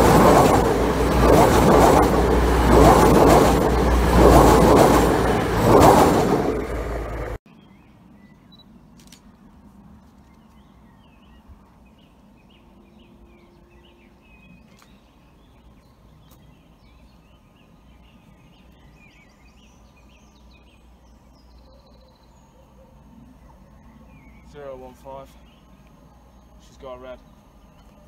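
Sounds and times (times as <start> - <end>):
small birds chirping: 6.5 - 9.2, 10.0 - 28.0.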